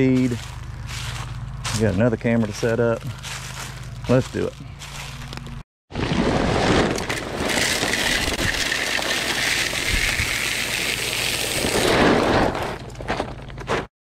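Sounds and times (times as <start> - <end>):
corn kernels pouring into bucket: 6.0 - 12.6.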